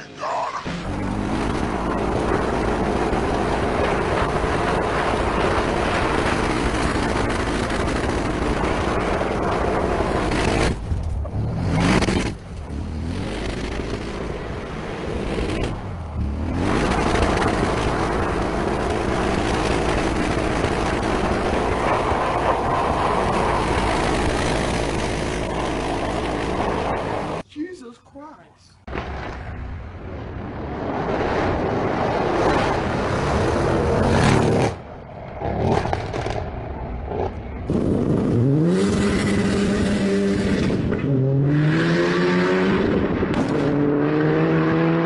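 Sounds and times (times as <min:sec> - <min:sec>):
tyres spinning and gravel spraying: 0:00.2 - 0:27.4
car engine revving: 0:37.2 - 0:45.0.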